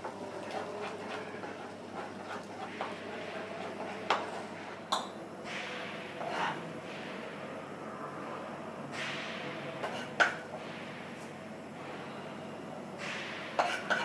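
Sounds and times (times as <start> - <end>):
metal spoon scraping frying pan: 6.2 - 6.6, 9.8 - 10.4, 13.6 - 14.0.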